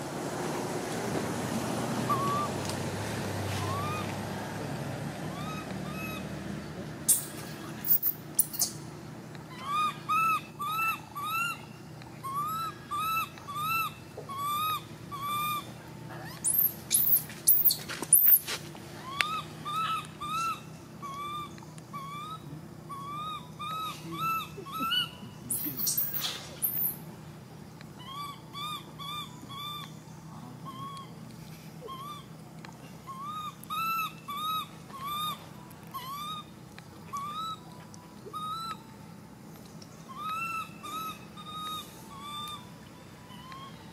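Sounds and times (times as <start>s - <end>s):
shrill monkey screams: 2.1s - 2.5s, 3.6s - 4.1s, 5.3s - 6.2s, 9.5s - 11.6s, 12.2s - 18.4s, 19.0s - 27.0s, 28.0s - 29.8s, 30.6s - 31.0s, 31.8s - 32.3s, 33.1s - 36.5s, 37.1s - 37.7s, 38.3s - 38.8s, 40.1s - 43.9s
infant monkey crying: 2.1s - 2.6s, 3.6s - 4.1s, 5.3s - 6.3s, 9.5s - 18.4s, 19.0s - 27.0s, 27.9s - 31.2s, 31.8s - 32.4s, 33.0s - 38.9s, 40.0s - 43.9s.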